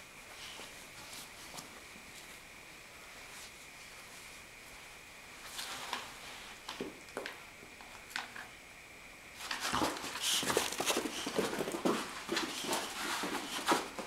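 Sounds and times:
dogs scuffling and scrambling: 9.4s - 14.0s.

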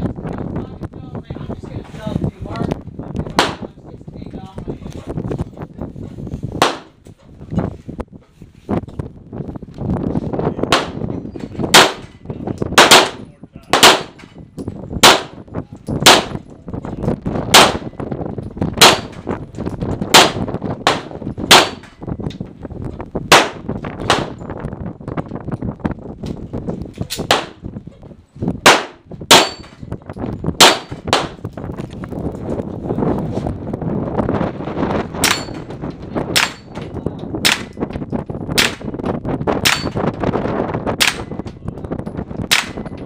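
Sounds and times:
handgun shots: 11.7s - 12.1s, 12.8s - 14.2s, 18.8s - 19.2s, 20.2s - 21.9s, 28.7s - 29.8s, 30.6s - 31.4s, 36.4s - 36.7s, 41.0s - 41.3s, 42.5s - 42.8s.

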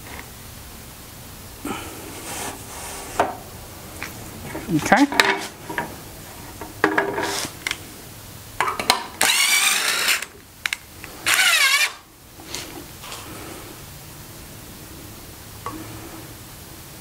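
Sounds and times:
power drill driving screws: 9.2s - 10.4s, 11.2s - 12.0s.

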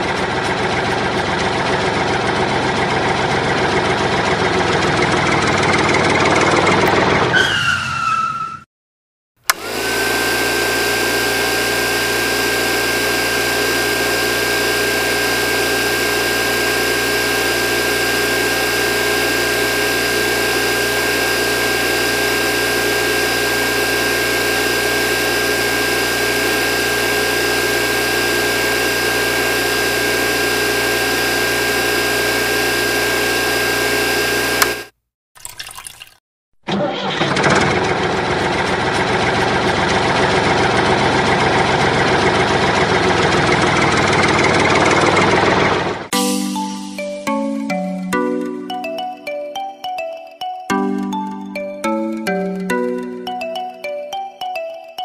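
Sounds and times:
toy tractor motor: 9.5s - 34.9s
small motor high whine: 9.5s - 35.0s.

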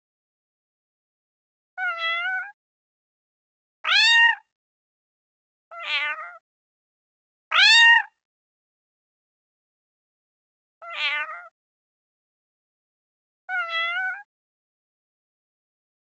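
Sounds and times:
cat meowing: 1.8s - 2.6s, 3.8s - 4.4s, 5.7s - 6.4s, 7.5s - 8.2s, 10.8s - 11.5s, 13.5s - 14.3s.

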